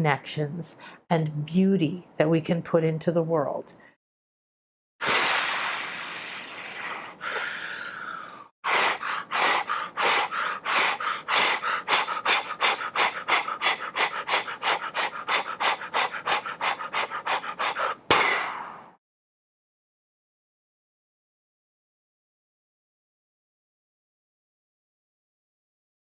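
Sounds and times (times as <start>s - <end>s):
woman breathing forcefully: 5.0s - 19.0s.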